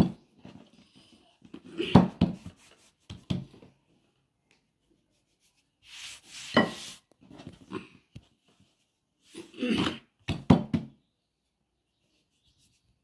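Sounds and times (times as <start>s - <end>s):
dough rubbing swish: 5.8s - 7.1s.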